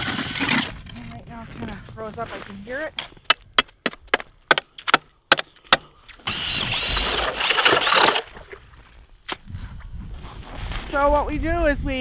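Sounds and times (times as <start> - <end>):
electric ice auger boring into ice: 0.0 - 0.7, 6.2 - 8.4.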